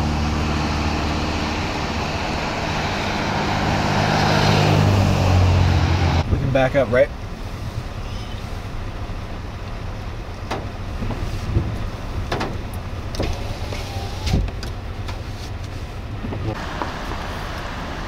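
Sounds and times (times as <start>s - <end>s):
low steady rumble: 5.1s - 18.0s.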